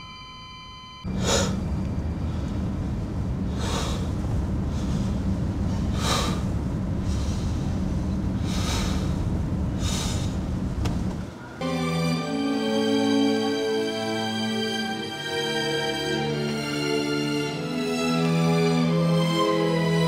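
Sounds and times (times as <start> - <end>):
steady low rumble: 1.0 - 11.6
man breathing heavily: 1.1 - 2.8, 3.4 - 10.7.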